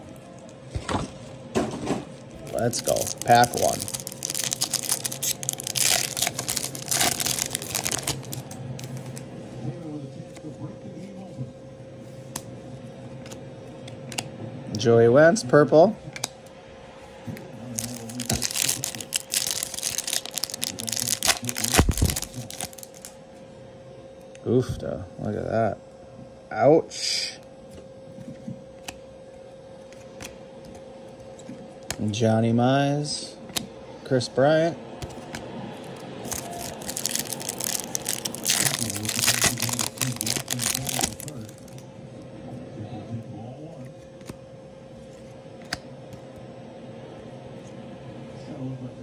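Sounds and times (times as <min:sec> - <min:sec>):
foil wrapper crinkling and tearing: 0:02.4 - 0:09.2, 0:17.7 - 0:23.2, 0:36.2 - 0:41.8.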